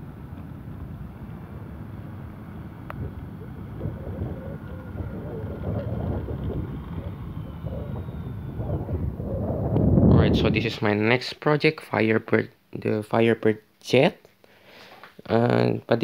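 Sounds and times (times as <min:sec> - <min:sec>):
wind buffeting the microphone: 0:00.0 - 0:11.0.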